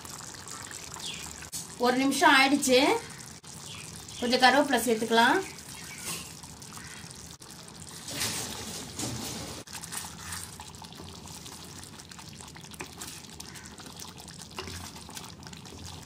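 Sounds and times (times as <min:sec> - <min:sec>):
curry simmering with small pops: 0:00.0 - 0:16.0
spatula stirring sloshing gravy: 0:05.5 - 0:16.0.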